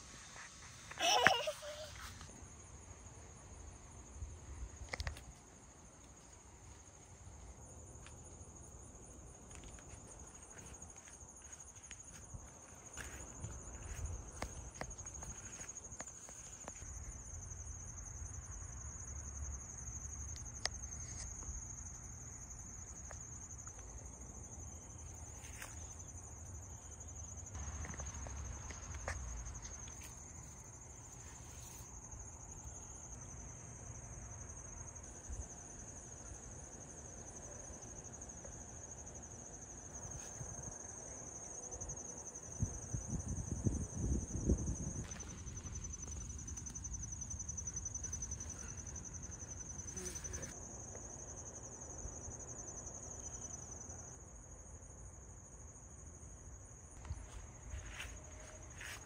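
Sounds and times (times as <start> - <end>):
insects trilling: 0.0 - 59.0.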